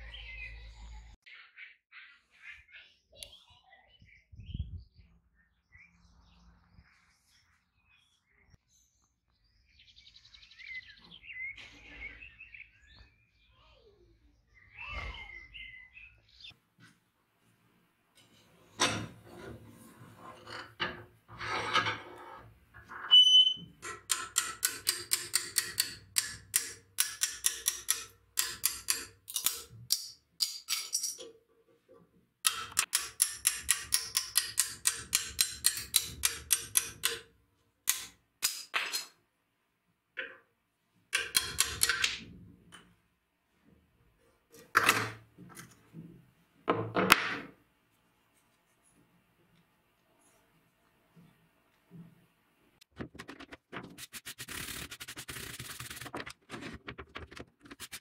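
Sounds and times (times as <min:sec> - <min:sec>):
hammer tapping metal chisel: 0:23.8 - 0:31.3, 0:32.4 - 0:37.3, 0:37.9 - 0:39.1, 0:41.1 - 0:42.2.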